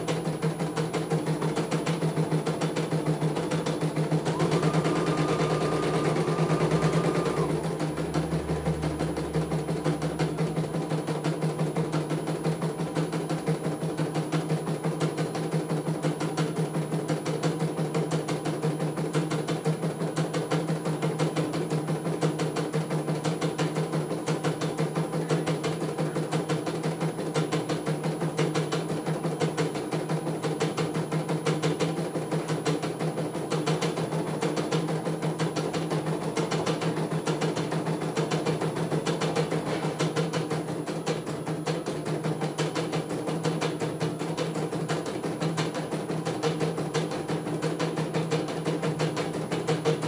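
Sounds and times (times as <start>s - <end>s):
steady motor hum: 3.3s - 12.6s.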